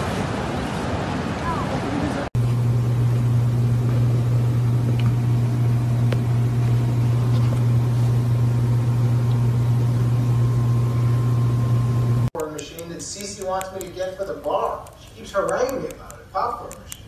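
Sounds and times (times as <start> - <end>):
steady low hum: 2.4 - 17.0
faint clicks: 12.4 - 17.0.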